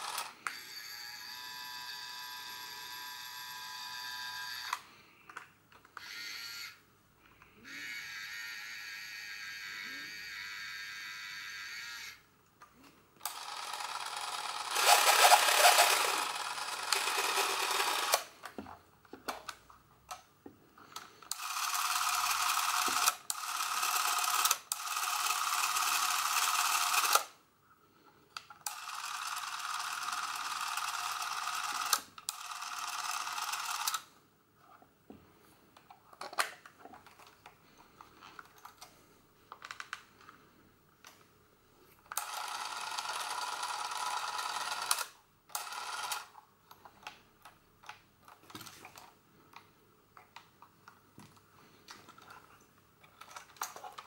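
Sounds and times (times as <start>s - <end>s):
camera motor running: 13.3s - 18.2s, 21.3s - 27.2s.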